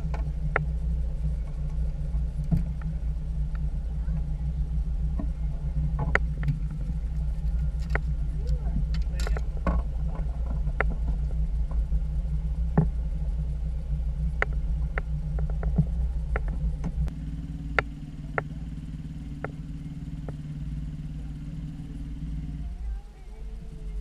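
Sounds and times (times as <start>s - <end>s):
sharp clicks and knocks: 0.0s - 0.7s, 5.1s - 11.9s, 14.4s - 18.6s
outboard motor running: 0.0s - 24.0s.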